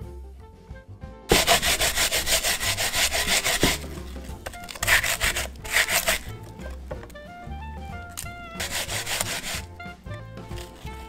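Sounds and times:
onion rasping on a grater: 1.3s - 7.1s, 8.1s - 9.8s
piano music: 1.4s - 11.0s.

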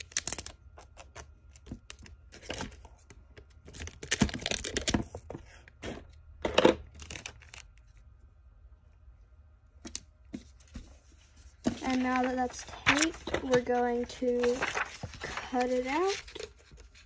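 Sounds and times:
paper rustling: 10.3s - 17.0s.

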